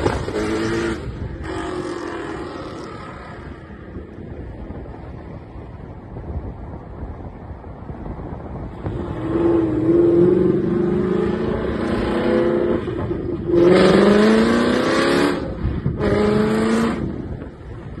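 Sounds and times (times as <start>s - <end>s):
car engine accelerating hard: 8.8s - 17.4s.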